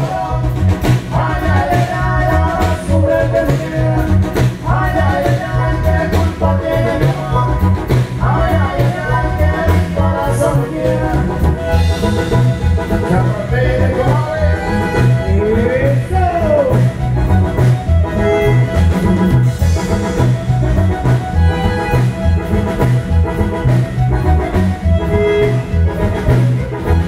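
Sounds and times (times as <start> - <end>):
latin dance band playing: 0.0 - 27.0
steady bass beat: 0.0 - 27.0
fiddle: 10.8 - 27.0.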